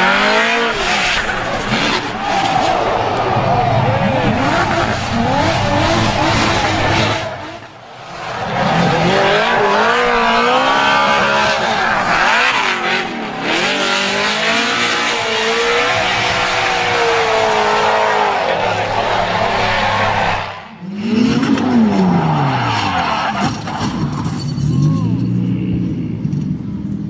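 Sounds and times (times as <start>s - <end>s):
car engine revving hard: 0.0s - 2.8s, 3.5s - 7.7s, 8.4s - 22.9s.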